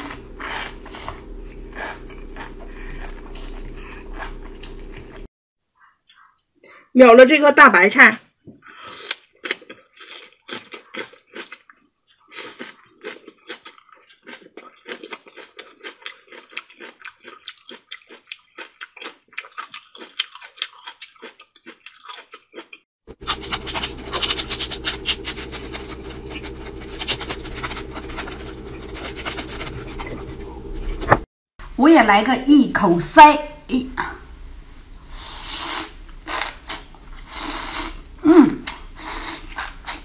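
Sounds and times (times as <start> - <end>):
chewing and slurping: 0.0 - 5.3, 8.6 - 31.3, 35.0 - 40.0
steady low hum: 0.0 - 5.3, 23.1 - 31.8.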